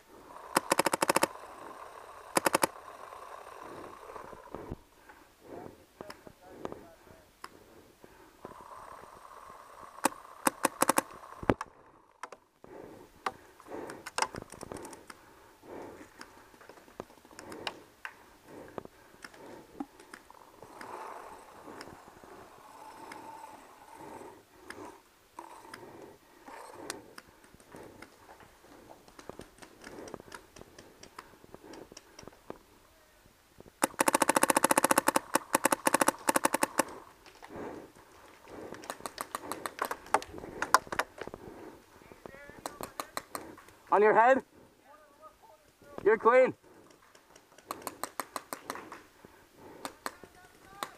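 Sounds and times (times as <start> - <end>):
distant paintball markers popping: 0.5 - 1.3, 2.3 - 2.7, 10.0 - 12.4, 29.0 - 32.4, 33.8 - 37.5, 38.6 - 41.3, 42.5 - 43.8, 46.8 - 49.1, 49.7 - 50.9
paintball marker rapid shots: 0.5 - 1.4, 2.3 - 2.8, 10.0 - 11.6, 33.8 - 37.0, 38.7 - 41.0, 42.6 - 43.6, 47.3 - 49.0, 49.7 - 50.9.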